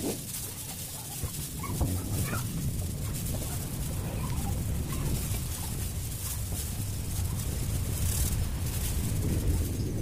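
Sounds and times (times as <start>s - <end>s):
low rumble: 0.0s - 10.0s
plastic bag rustling: 0.0s - 10.0s.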